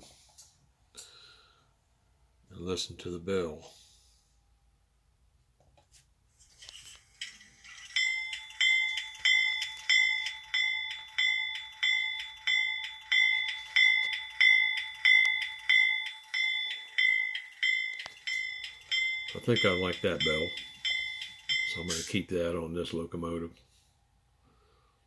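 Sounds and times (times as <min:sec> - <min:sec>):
locomotive bell ringing: 0:07.6 - 0:22.3.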